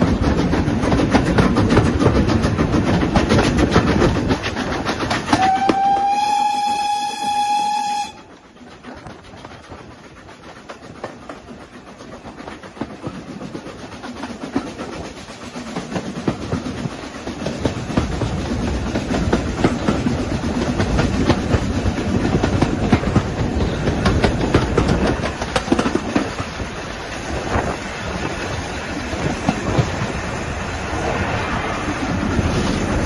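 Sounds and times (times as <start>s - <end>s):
train running noise: 0.0s - 33.0s
steam train whistle blast: 5.3s - 8.3s.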